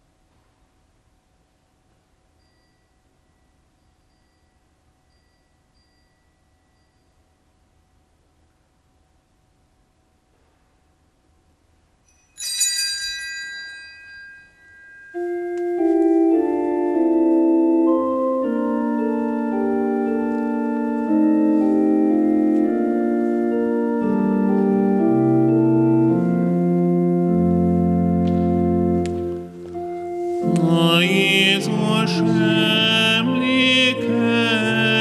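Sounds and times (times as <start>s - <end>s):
bright ringing tone: 2.3s - 7.6s, 12.1s - 16.0s
church organ playing chords: 15.1s - 35.0s.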